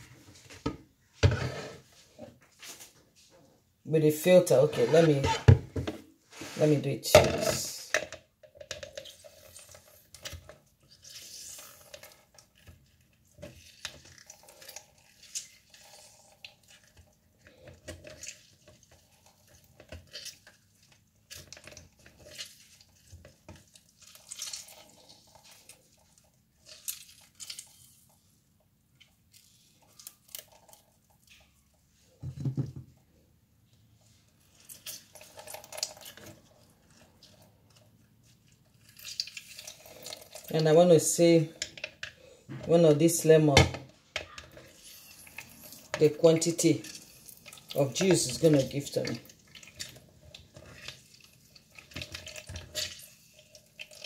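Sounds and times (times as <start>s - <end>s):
faint squishing of fruit: 0.0s - 54.0s
juice dripping: 10.9s - 28.2s, 34.5s - 42.4s, 44.4s - 54.0s.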